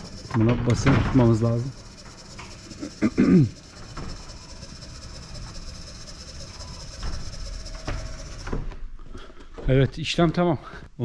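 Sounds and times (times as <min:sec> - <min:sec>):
door rumbling on tracks: 0:00.0 - 0:08.8
door motor hum and whine: 0:00.0 - 0:09.0.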